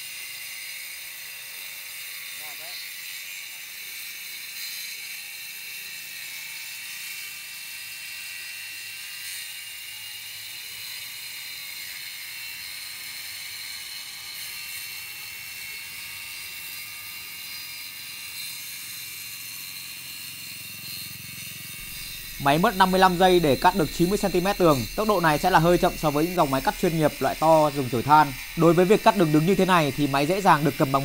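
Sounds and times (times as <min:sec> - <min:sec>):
wall chaser cutting brick: 0:17.4 - 0:31.0.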